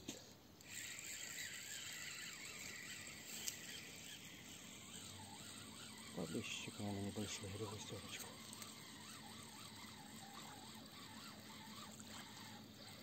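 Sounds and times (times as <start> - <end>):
faint outdoor hiss: 0.0 - 13.0
small tick: 3.4 - 3.6.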